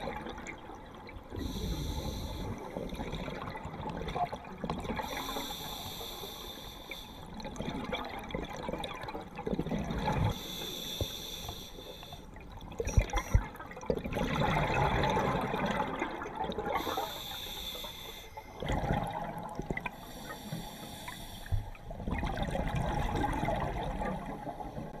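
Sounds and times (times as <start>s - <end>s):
exhaust bubbles underwater: 0.0s - 5.4s, 7.3s - 10.4s, 12.4s - 17.0s, 18.6s - 20.2s, 21.8s - 25.0s
regulator hiss on inhalation: 1.5s - 2.6s, 5.1s - 7.2s, 10.3s - 12.2s, 16.8s - 18.4s.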